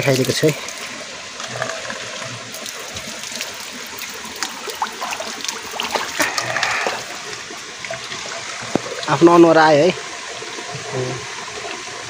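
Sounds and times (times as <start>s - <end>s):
water trickling onto rock: 0.0s - 9.2s
small drips and splashes: 0.0s - 12.0s.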